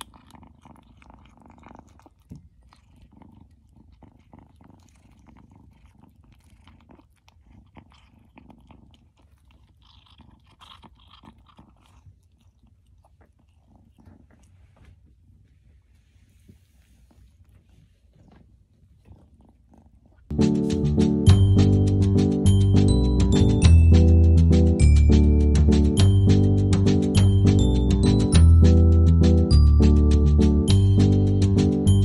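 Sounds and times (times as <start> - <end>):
kitten chewing: 0.0 - 15.7.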